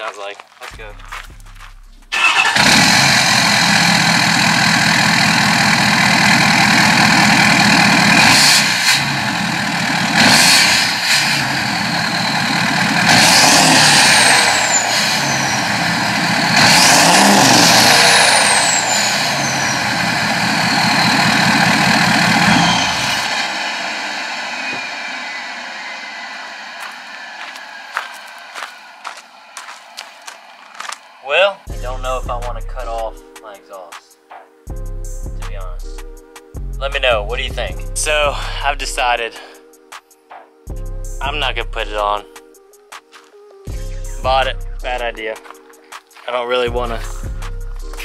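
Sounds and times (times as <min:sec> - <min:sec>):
diesel truck engine revving: 0:00.8 - 0:31.2, 0:46.7 - 0:48.0
turbo whistle: 0:10.0 - 0:28.4.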